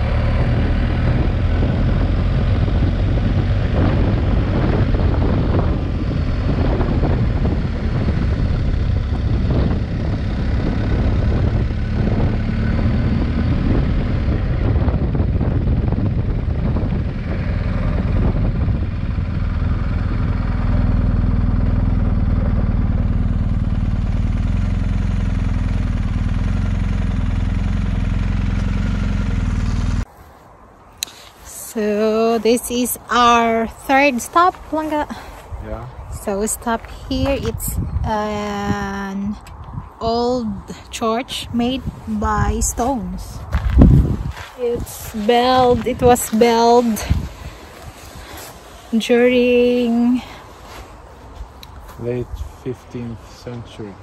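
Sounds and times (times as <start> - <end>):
motorcycle engine running: 0.0 - 30.1, 40.0 - 50.8.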